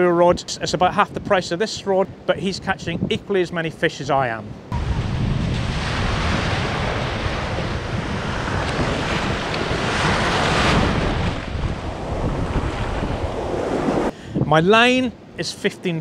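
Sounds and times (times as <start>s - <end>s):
wind buffeting microphone: 4.5s - 15.0s
surf breaking on a beach: 4.7s - 14.1s.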